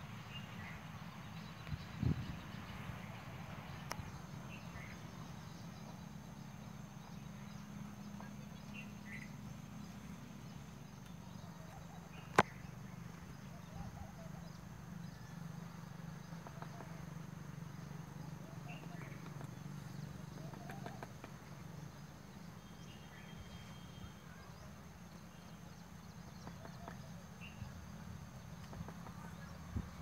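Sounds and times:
steady low hum: 0.0 - 30.0
faint bird chirps: 0.2 - 30.0.

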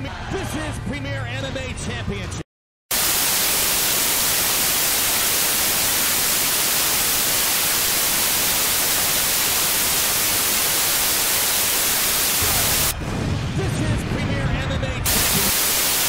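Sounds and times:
static hiss: 2.9 - 12.9, 15.1 - 16.0.

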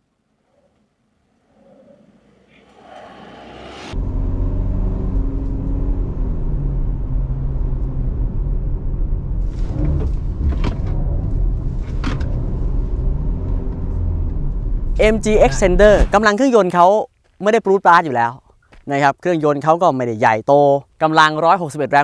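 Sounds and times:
road rumble: 1.5 - 16.5
diesel truck engine: 2.7 - 16.1.

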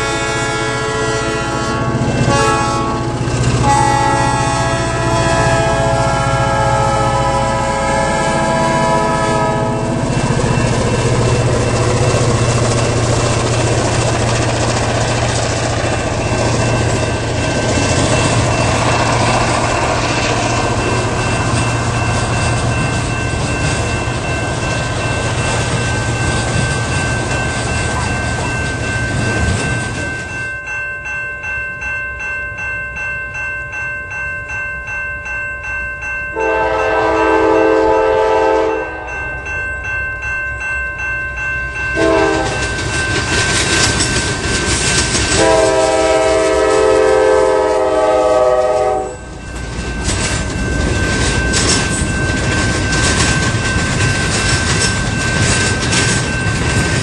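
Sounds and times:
locomotive air horn: 0.0 - 10.0, 36.4 - 39.2, 42.0 - 42.6, 45.4 - 49.2
freight train rolling past: 0.0 - 57.0
railroad crossing bell ringing: 0.0 - 57.0.

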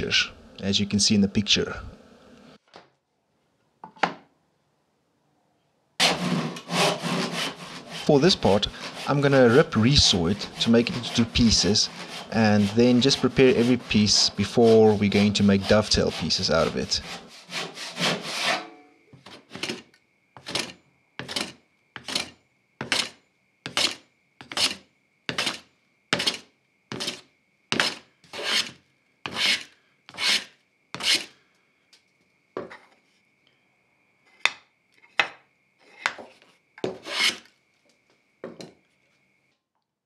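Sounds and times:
hand plane swishing on wood: 6.0 - 18.6, 27.8 - 28.7, 29.3 - 29.6, 30.2 - 30.4, 36.9 - 37.4.

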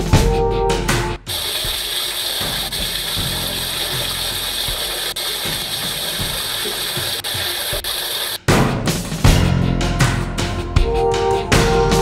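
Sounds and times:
seawater gushing into a cabin: 1.3 - 8.4.

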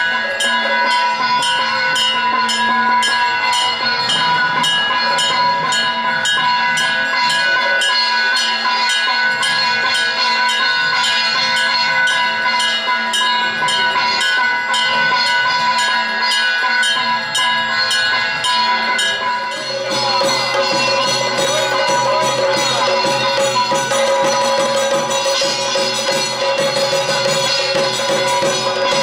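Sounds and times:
steady wavering tone: 0.0 - 29.0
temple bells ringing: 0.0 - 29.0.

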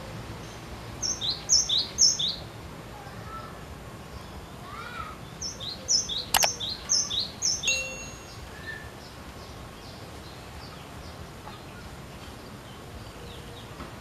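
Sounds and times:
bird singing whistled notes: 5.4 - 8.9
sharp click: 6.4 - 6.6.

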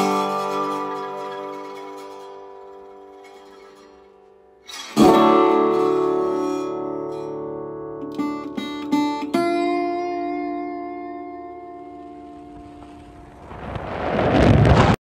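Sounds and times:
acoustic guitar music: 0.0 - 13.4.

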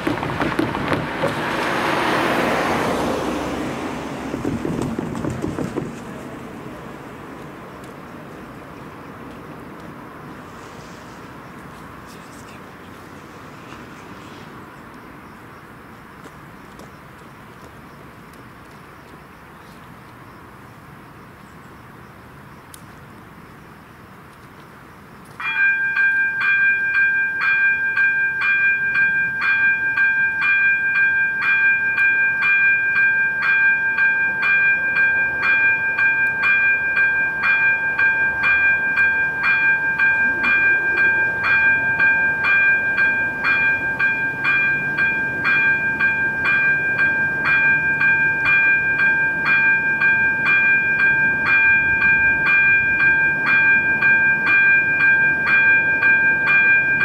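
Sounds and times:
level crossing warning bell: 25.4 - 57.0.

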